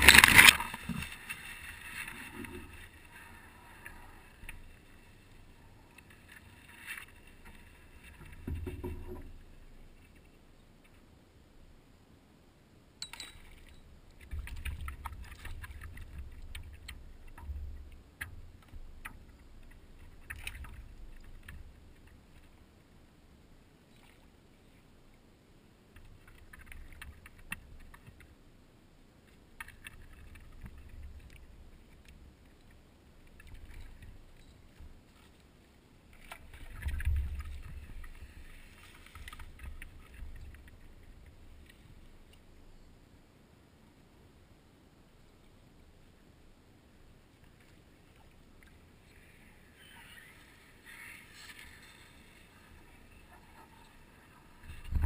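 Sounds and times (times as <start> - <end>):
paddle strokes: 29.2 - 42.6.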